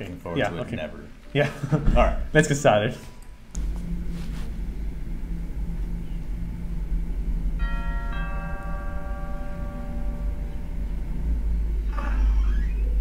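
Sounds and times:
steady low hum: 0.0s - 13.0s
two-note doorbell chime: 7.6s - 11.4s.

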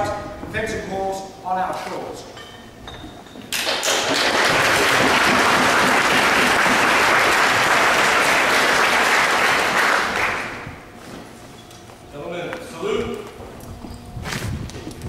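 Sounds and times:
audience applauding: 3.6s - 10.6s.

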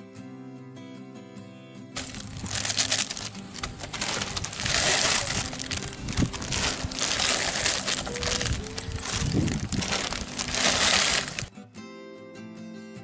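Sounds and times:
plastic packets crinkling: 2.0s - 11.5s.

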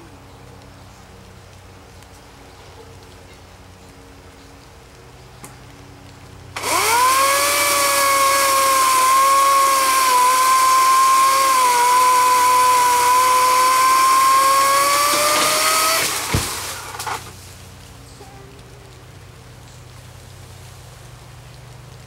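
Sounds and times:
electric chainsaw motor whining: 6.6s - 17.4s.

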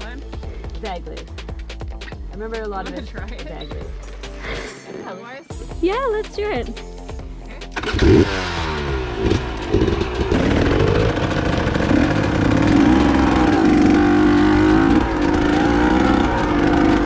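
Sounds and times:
dirt bike engine revving: 7.7s - 17.0s.

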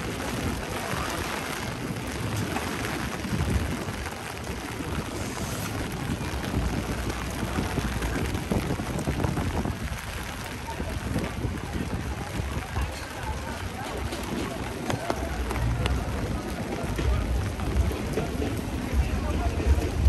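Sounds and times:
heavy rain falling: 0.0s - 20.0s
low rumble of street noise: 0.0s - 20.0s.

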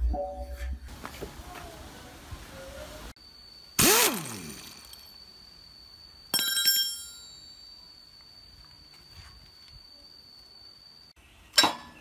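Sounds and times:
metal tools clinking on gear: 4.4s - 5.2s, 6.3s - 7.7s.

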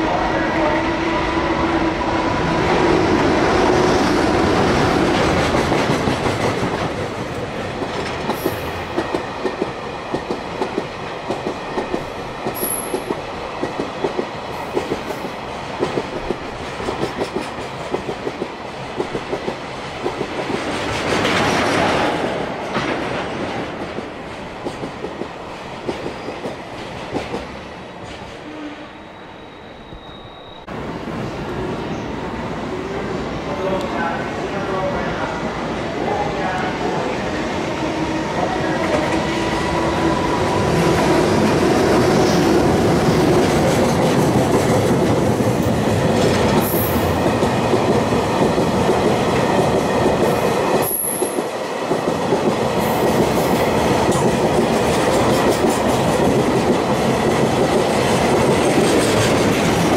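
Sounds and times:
train rush: 0.0s - 59.9s
train wheels clacking on rail joints: 4.5s - 28.4s, 41.2s - 59.9s.

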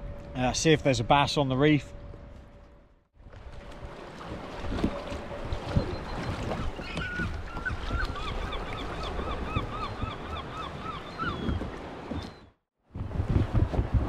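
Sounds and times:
water noise: 0.0s - 14.0s
wind: 0.0s - 14.0s
bird calling: 5.8s - 12.6s.

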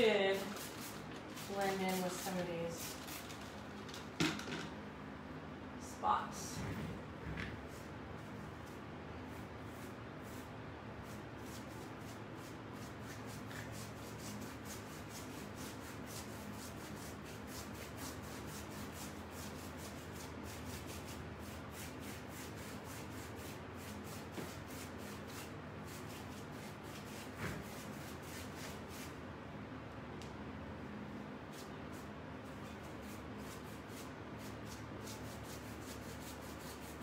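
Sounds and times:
paintbrush scrubbing on paper: 0.0s - 3.5s, 9.3s - 29.2s, 31.5s - 37.0s
faint steady hum: 0.0s - 37.0s.

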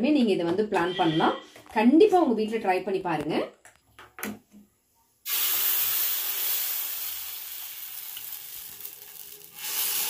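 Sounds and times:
batter sizzling on hot pan: 5.2s - 10.0s.

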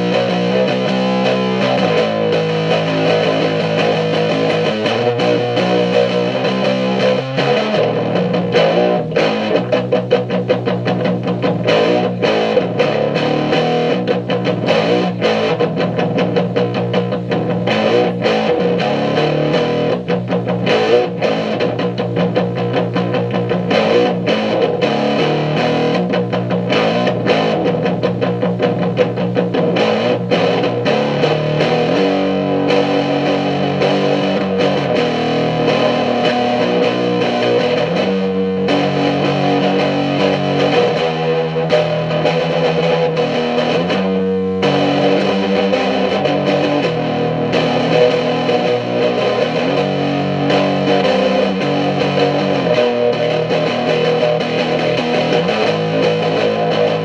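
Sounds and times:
distorted electric guitar music: 0.0s - 57.0s.

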